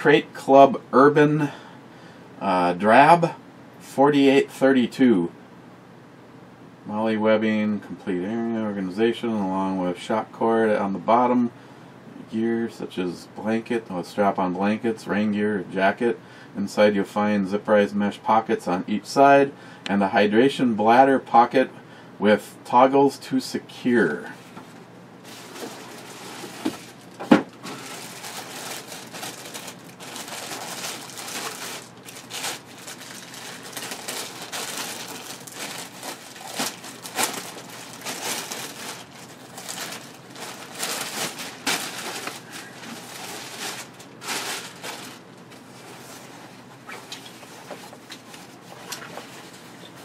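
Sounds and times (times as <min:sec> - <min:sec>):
plastic bag crinkling: 0:25.2 - 0:50.0.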